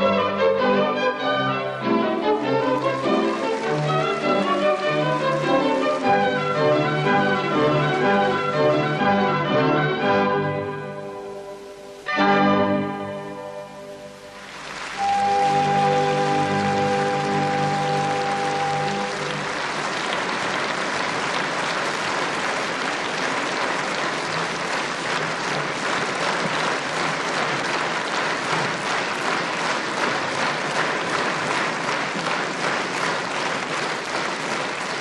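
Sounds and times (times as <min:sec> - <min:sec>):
audience applauding: 0:01.8 - 0:09.6, 0:14.0 - 0:35.0
orchestra final chord: 0:15.0 - 0:19.9.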